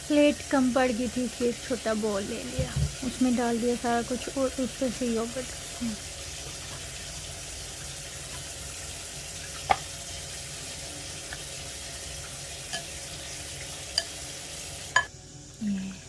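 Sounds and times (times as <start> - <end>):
steady background hiss: 0.0 - 16.0
spoon clinking on glass: 12.7 - 13.0.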